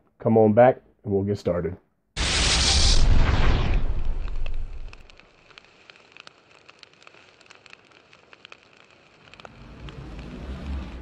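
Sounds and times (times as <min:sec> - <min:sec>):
low rumble: 0:02.2 - 0:05.1
fire crackling and popping: 0:02.2 - 0:11.0
soft hiss: 0:02.2 - 0:11.0.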